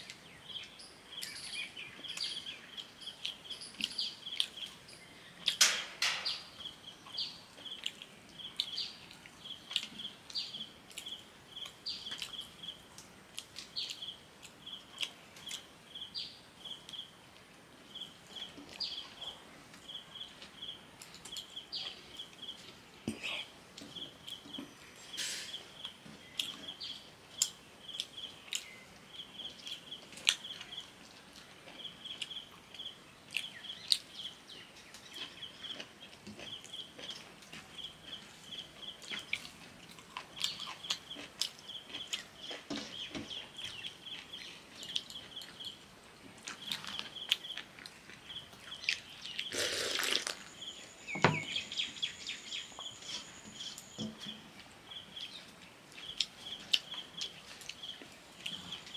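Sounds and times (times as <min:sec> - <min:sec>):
bird chirping: 0:00.0 - 0:12.9, 0:13.6 - 0:17.2, 0:17.9 - 0:58.9
rustle: 0:23.7 - 0:32.7, 0:42.2 - 0:58.9.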